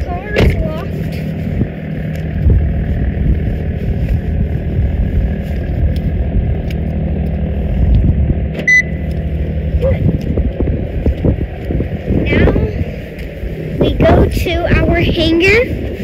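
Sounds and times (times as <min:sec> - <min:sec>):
engine humming: 0:00.0 - 0:16.0
car remote lock beep: 0:08.6 - 0:09.0.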